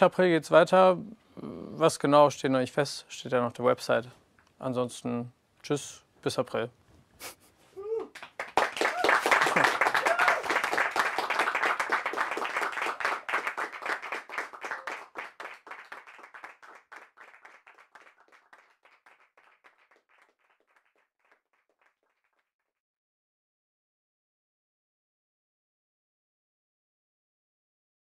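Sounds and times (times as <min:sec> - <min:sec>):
people cheering: 0:07.8 - 0:16.3
group clapping: 0:08.1 - 0:22.5.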